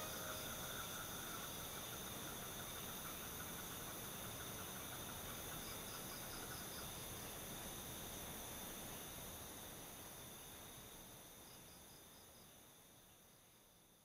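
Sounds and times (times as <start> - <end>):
insects trilling: 0.0 - 9.6
steady hiss: 0.0 - 14.0.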